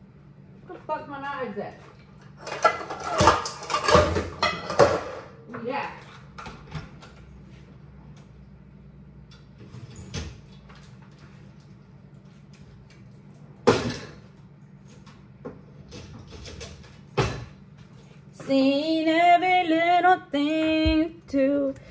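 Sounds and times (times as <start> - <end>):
steady low hum: 0.0 - 21.9
kitchen cabinets knocking and clunking: 2.4 - 5.7.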